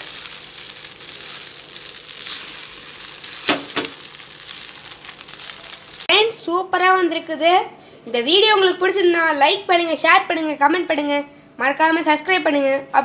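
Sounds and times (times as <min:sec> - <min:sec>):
spatula rasping: 0:00.0 - 0:06.0
rice sizzling in a pan: 0:00.0 - 0:06.1.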